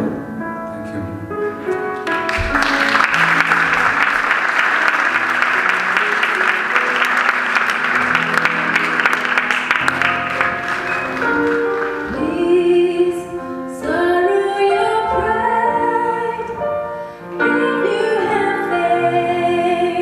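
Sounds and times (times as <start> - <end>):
instrumental accompaniment: 0.0 - 20.0
audience applause: 2.0 - 12.2
woman singing into microphone: 12.1 - 16.6, 17.4 - 20.0.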